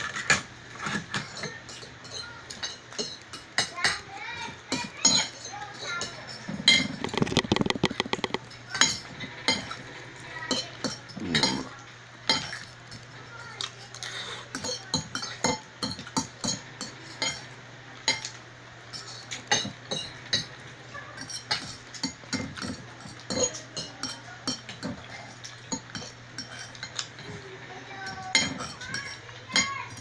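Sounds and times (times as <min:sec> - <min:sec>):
forks scraping plates: 0:00.0 - 0:13.0, 0:18.1 - 0:30.0
eating noises: 0:05.6 - 0:18.4.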